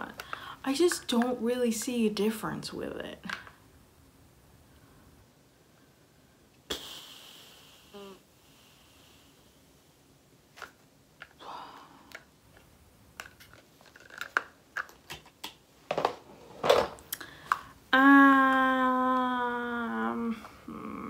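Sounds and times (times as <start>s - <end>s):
plastic containers clicking and rattling: 12.1s - 17.6s.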